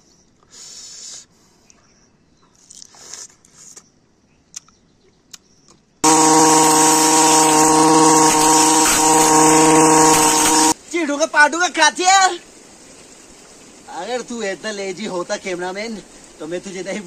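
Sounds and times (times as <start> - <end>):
chewing crisp fruit: 2.6 - 3.8
brush cutter engine running: 6.0 - 10.8.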